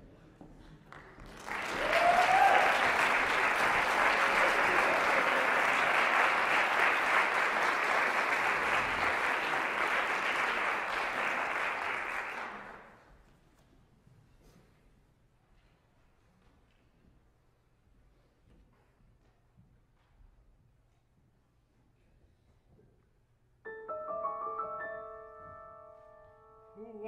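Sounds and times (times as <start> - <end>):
audience applauding: 0.9 - 13.0.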